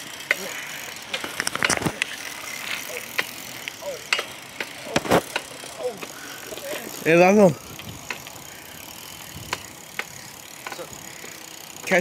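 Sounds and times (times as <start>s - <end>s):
bike clicks and rattles: 0.0s - 12.0s
wind and tyre noise: 4.4s - 12.0s.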